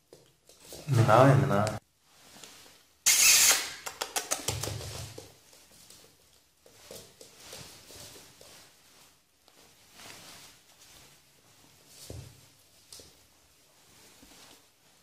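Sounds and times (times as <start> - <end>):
puppy paws scuffling on wooden floor: 0.0 - 15.0
quick run of clicks: 3.1 - 5.0.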